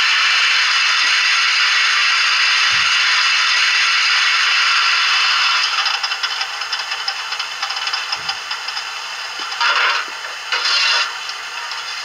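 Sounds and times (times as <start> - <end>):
fast rattling clatter: 5.6 - 11.0.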